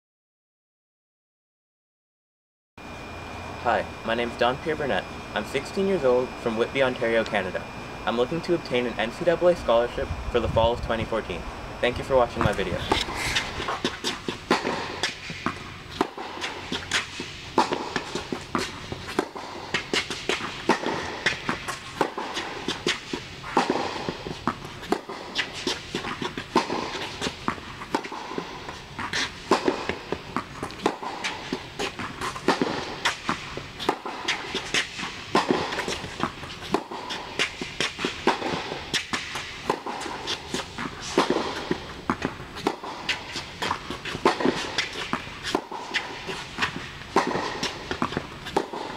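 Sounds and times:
footsteps on court: 0:12.1 - 0:48.9.

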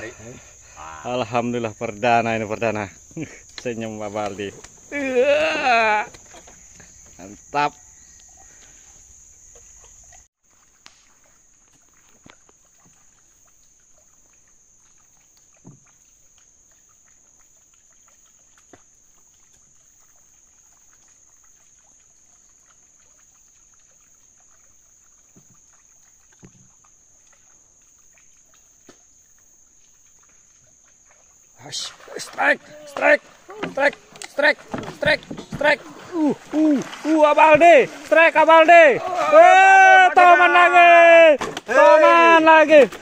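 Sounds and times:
insects droning: 0:00.0 - 0:43.0
paddle knocking on wooden boat: 0:32.3 - 0:39.2.

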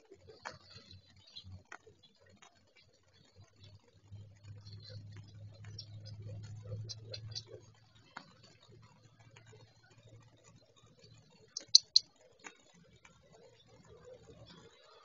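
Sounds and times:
faint low hum: 0:00.0 - 0:15.0
sharp clicks: 0:04.6 - 0:08.5, 0:11.5 - 0:12.5.

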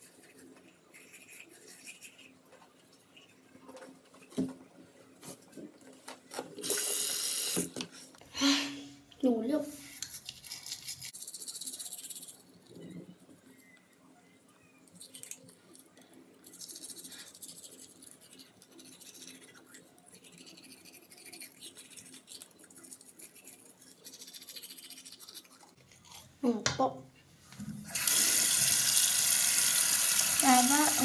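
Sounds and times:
toothbrush scrubbing teeth: 0:00.0 - 0:03.7, 0:09.7 - 0:13.3, 0:14.8 - 0:26.4, 0:27.9 - 0:31.0.

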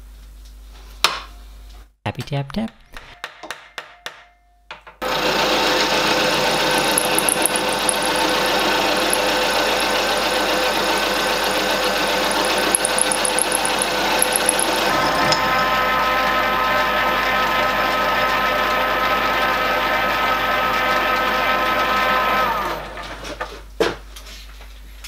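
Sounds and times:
milling machine cutting steel: 0:05.0 - 0:19.3.

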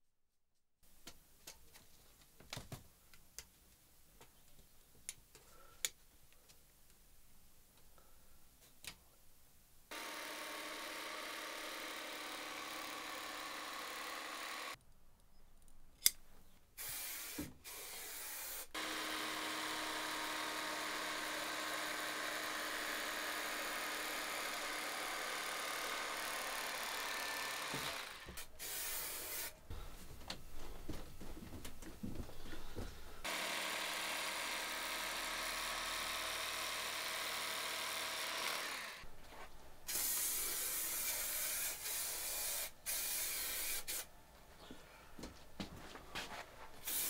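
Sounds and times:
aerosol spray hiss: 0:16.8 - 0:17.5, 0:28.6 - 0:29.6, 0:39.9 - 0:44.0
electric knife slicing foam: 0:16.8 - 0:29.5.

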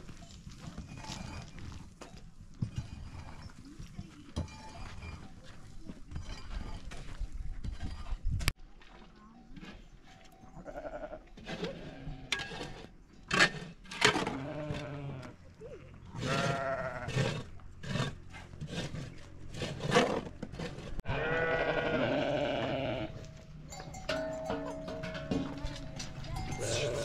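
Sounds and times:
sheep bleating: 0:10.6 - 0:11.2, 0:14.4 - 0:17.1, 0:21.1 - 0:23.3, 0:26.4 - 0:27.0.

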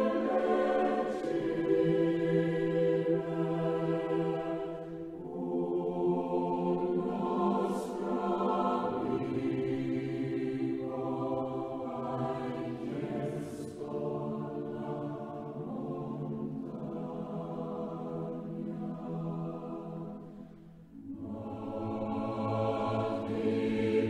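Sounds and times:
choir singing slow chords: 0:00.0 - 0:24.0.

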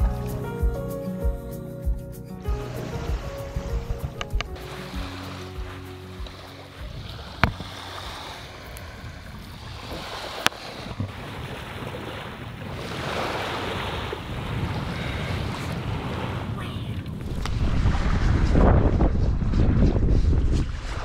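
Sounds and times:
wind buffeting microphone: 0:02.5 - 0:21.0
small waves washing on sand: 0:02.6 - 0:19.8.

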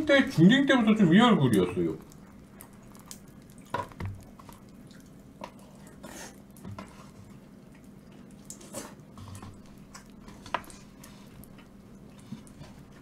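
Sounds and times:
faint clicks and soft knocks: 0:01.5 - 0:05.6.

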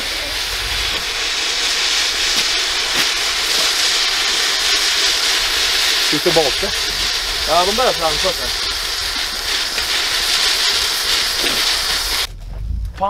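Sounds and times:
steam hissing: 0:00.0 - 0:12.3
low rumble: 0:11.8 - 0:13.0.

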